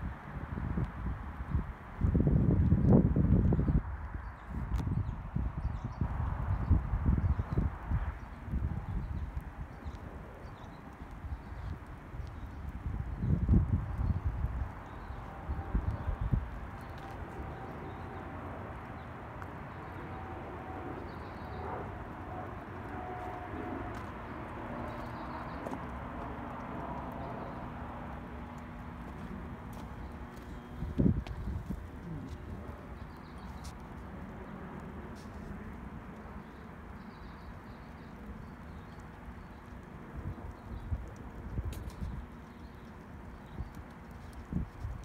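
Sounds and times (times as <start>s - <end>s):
low steady rumble: 5.0s - 36.7s.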